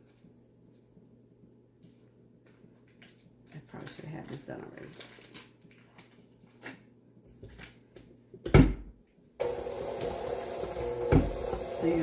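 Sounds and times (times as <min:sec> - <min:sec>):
mixer head thump: 0:09.4 - 0:12.0
stand mixer motor running: 0:09.4 - 0:12.0.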